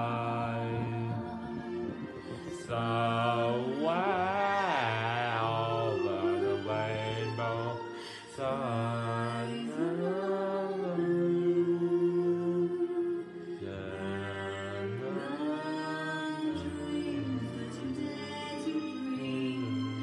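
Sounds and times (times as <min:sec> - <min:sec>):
man chanting wordless low notes: 0:00.0 - 0:07.8.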